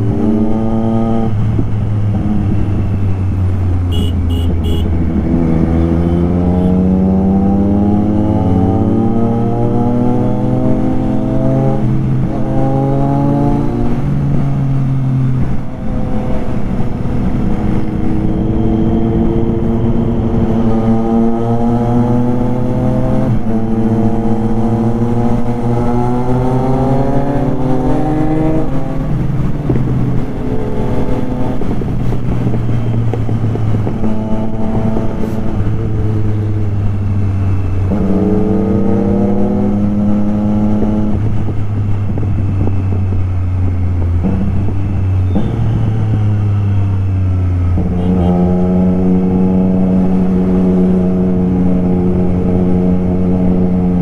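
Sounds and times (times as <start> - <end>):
motorcycle engine running: 0.0 - 6.9, 27.4 - 54.0.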